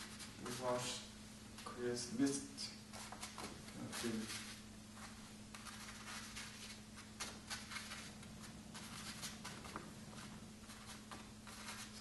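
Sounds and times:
painting brush swishing on paper: 8.7s - 12.0s.

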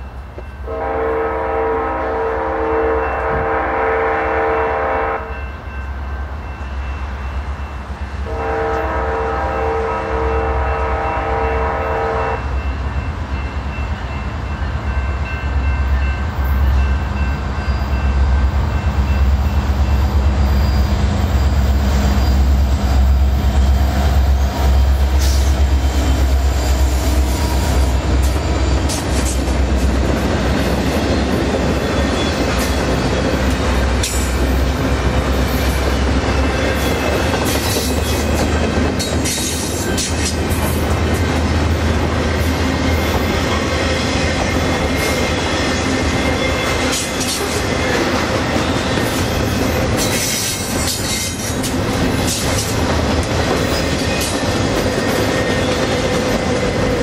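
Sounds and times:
locomotive air horn blasts: 0.6s - 5.5s, 8.2s - 12.6s.

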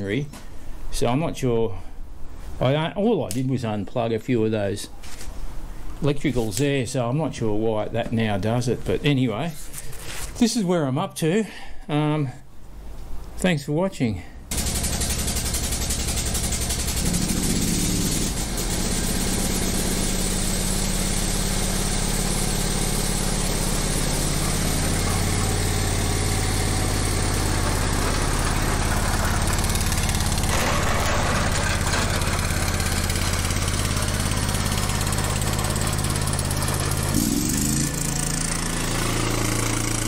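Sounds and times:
ride-on mower engine running: 14.5s - 40.0s.

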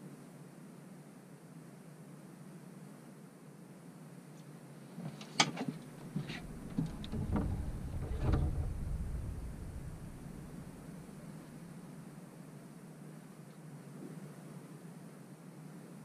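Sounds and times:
clicks and knocks in a boat: 5.1s - 11.3s.

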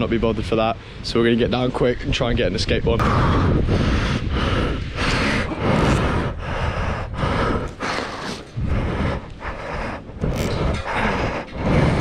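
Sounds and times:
heavy rapid breathing: 3.0s - 12.0s
jacket fabric rubbing microphone: 7.3s - 12.0s.

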